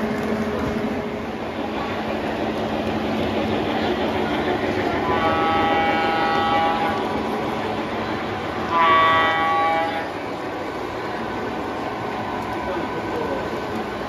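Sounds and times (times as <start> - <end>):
model trains rolling rumble: 0.0 - 14.0
model locomotive horn blasts: 5.0 - 7.1, 8.6 - 10.2.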